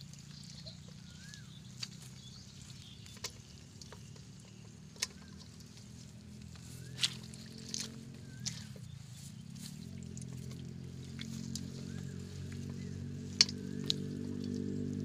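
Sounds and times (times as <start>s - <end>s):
faint bird chirps: 0.0s - 10.6s
low hum: 0.0s - 15.0s.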